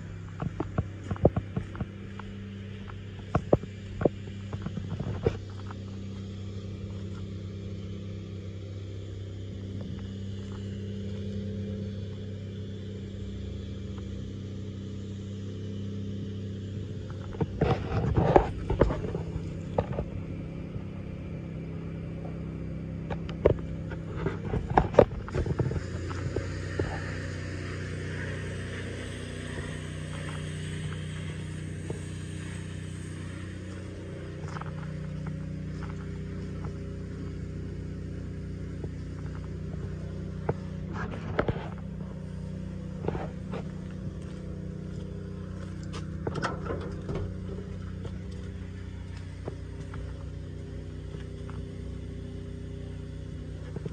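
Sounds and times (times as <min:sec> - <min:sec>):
fire truck engine idling: 0:05.4 - 0:53.9
sharp knocks and scrapes: 0:17.2 - 0:20.1.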